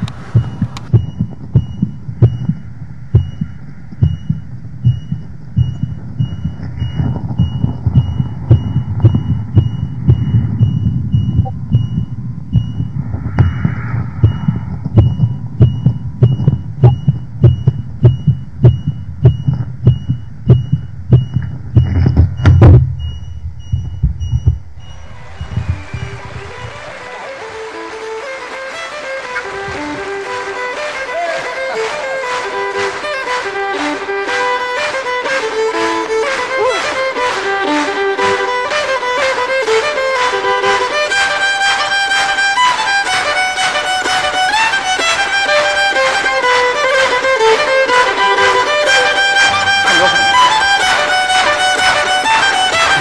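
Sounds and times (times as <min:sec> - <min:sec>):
heartbeat thumps: 0:00.0 - 0:26.9, 0:33.5 - 0:53.0
heart monitor beep: 0:00.0 - 0:27.3, 0:38.4 - 0:53.0.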